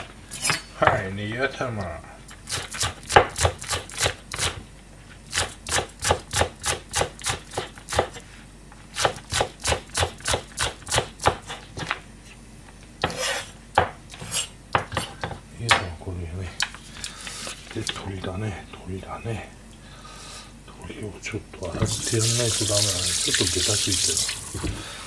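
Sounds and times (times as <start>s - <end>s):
knife chopping on cutting board: 2.6s - 4.6s, 5.4s - 8.2s, 9.0s - 12.0s, 13.0s - 15.8s.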